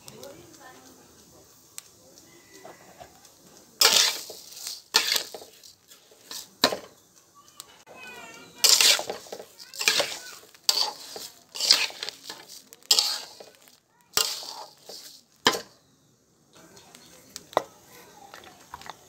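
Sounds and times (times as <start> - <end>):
spatula stirring rice in a pot: 0.0 - 7.2, 8.0 - 15.8.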